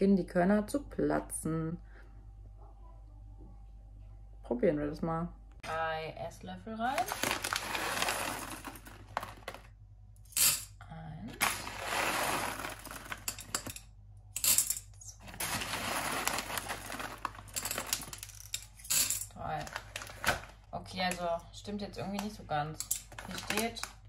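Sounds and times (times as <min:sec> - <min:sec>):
popcorn kernels poured into metal pot: 0:07.0 - 0:09.6, 0:11.4 - 0:13.7, 0:15.2 - 0:18.4.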